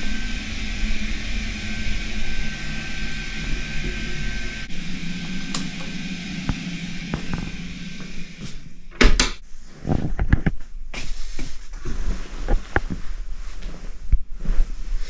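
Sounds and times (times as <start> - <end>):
steady hum: 0.0 - 15.0
wooden wardrobe door opening and shutting: 8.9 - 9.4.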